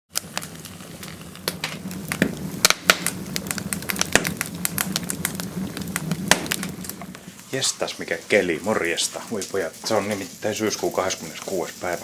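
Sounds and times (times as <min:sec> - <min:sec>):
sharp clicks and crackles: 0:00.1 - 0:07.3
steady low hum: 0:00.6 - 0:08.8.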